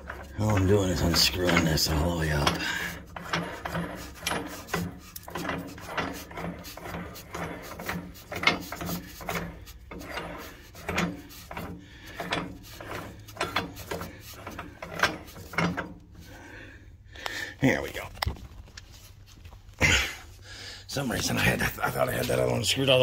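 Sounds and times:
metal threads rasping: 0.0 - 16.7.

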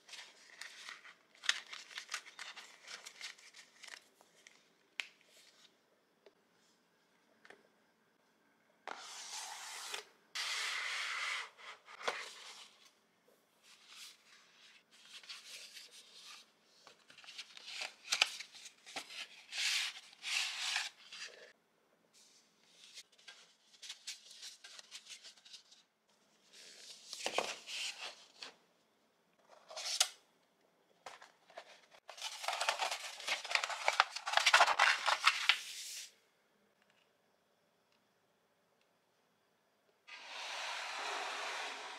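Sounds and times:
paper decoration crinkling: 0.0 - 4.6, 31.4 - 35.7
cardboard box and paper rustling: 31.1 - 35.6.

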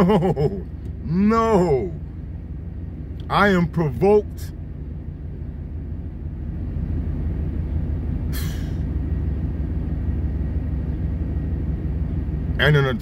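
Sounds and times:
truck engine rumble: 0.0 - 13.0
brief hiss: 8.3 - 8.8.

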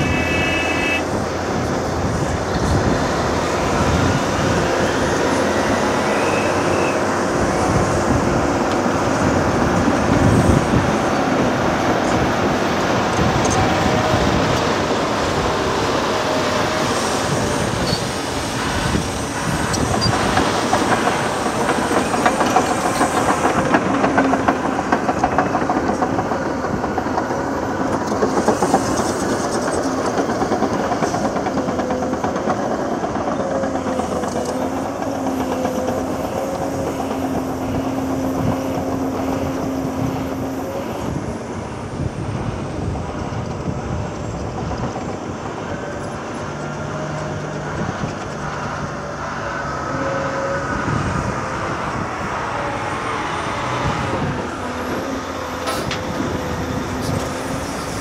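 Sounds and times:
heavy diesel machinery engine hum: 0.0 - 58.0.

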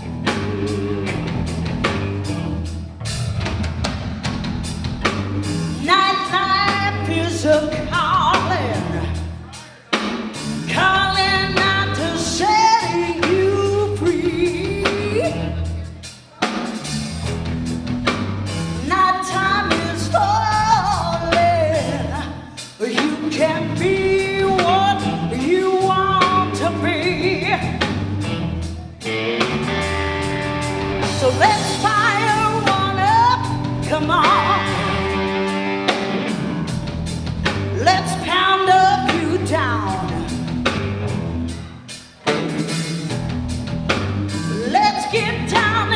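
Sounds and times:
blues band playing: 0.0 - 45.9
woman singing: 5.8 - 9.3, 10.6 - 15.6, 18.8 - 27.9, 31.0 - 35.2, 37.8 - 40.4, 44.4 - 45.9.

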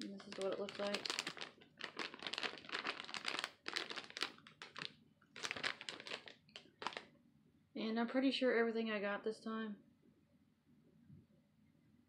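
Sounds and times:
plastic packet crinkling: 0.0 - 7.1.

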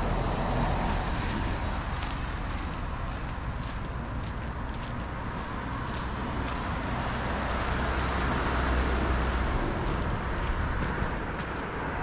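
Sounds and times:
car passing by: 5.1 - 12.0.

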